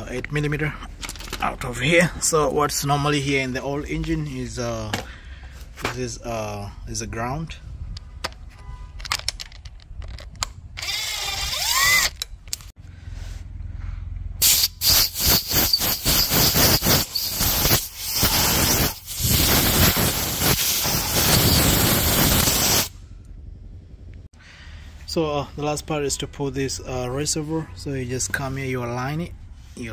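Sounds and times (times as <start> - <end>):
cordless power ratchet spinning: 10.8 - 12.3, 14.4 - 22.9.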